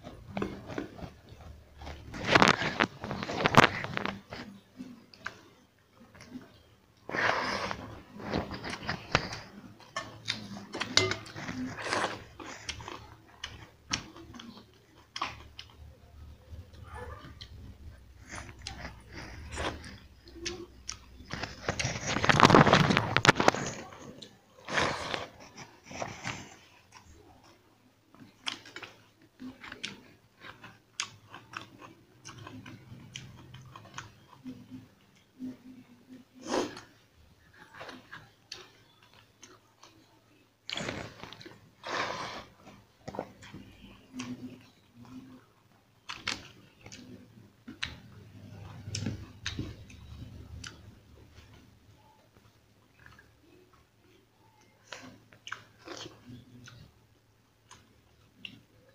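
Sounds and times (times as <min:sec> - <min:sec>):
person chewing: 0:00.0 - 0:05.4, 0:06.1 - 0:35.5, 0:46.0 - 0:51.7, 0:52.4 - 0:56.9
chewing with wet smacks: 0:25.4 - 0:35.9, 0:52.3 - 0:56.9, 0:57.6 - 0:58.9.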